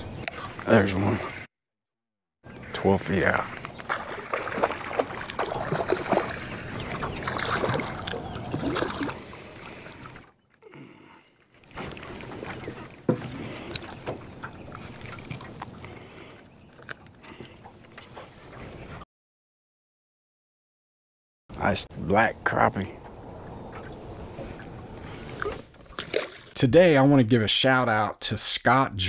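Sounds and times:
waves lapping against boat hull: 0:02.5 - 0:10.5, 0:11.4 - 0:19.0, 0:22.6 - 0:26.6.

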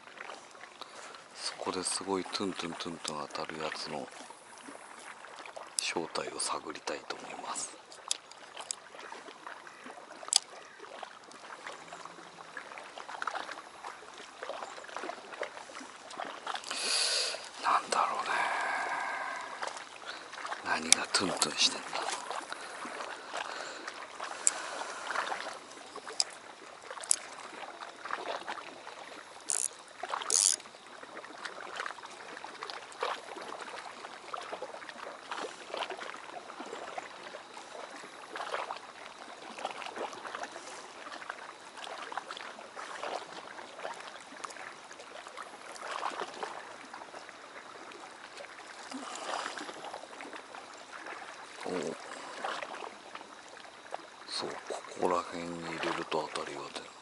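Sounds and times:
waves lapping against stone wall: 0:00.0 - 0:57.0
sharp high clicks: 0:29.4 - 0:30.6.

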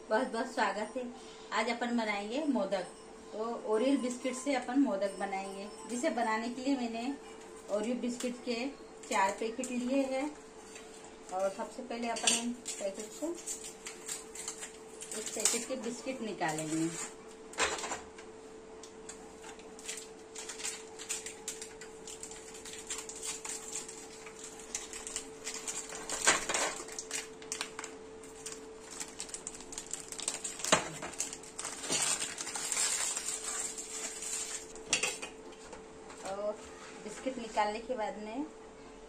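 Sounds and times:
plastic wrappers crinkling: 0:12.3 - 0:17.2, 0:19.1 - 0:35.2.

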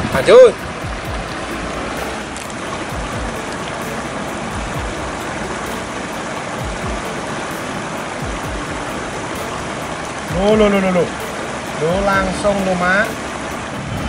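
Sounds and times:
low rumbles: 0:00.0 - 0:14.0
river water rushing: 0:00.0 - 0:14.0.

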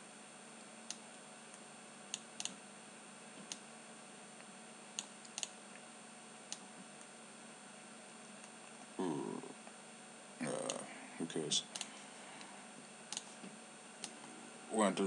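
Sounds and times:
faint steady hiss: 0:00.0 - 0:15.0
computer mouse clicking: 0:00.8 - 0:02.6, 0:03.4 - 0:03.6, 0:05.0 - 0:05.6, 0:11.7 - 0:11.9, 0:13.1 - 0:13.4.

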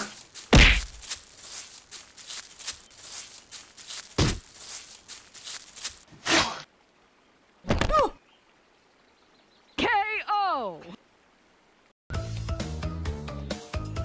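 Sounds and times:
crunching on dry leaves: 0:00.0 - 0:06.1
heavy fight hits: 0:00.5 - 0:00.9.

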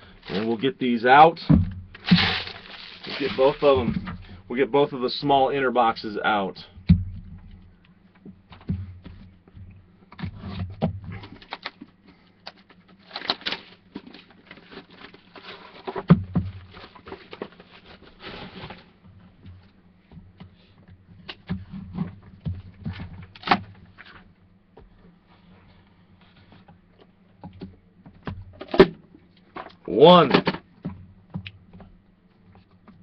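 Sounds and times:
plastic and cardboard rustling: 0:00.0 - 0:00.8, 0:01.5 - 0:04.5, 0:10.2 - 0:19.6
steady low hum: 0:00.0 - 0:29.9.

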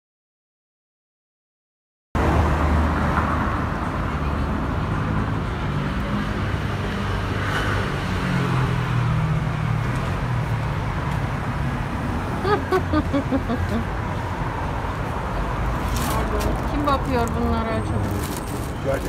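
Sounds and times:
street traffic: 0:02.2 - 0:19.0
vehicle engine humming: 0:09.1 - 0:19.0.

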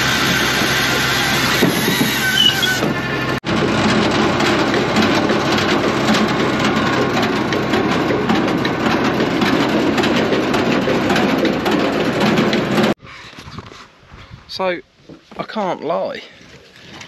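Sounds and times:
firewood processor conveyor clattering: 0:00.0 - 0:13.0
tractor engine: 0:00.0 - 0:13.0.

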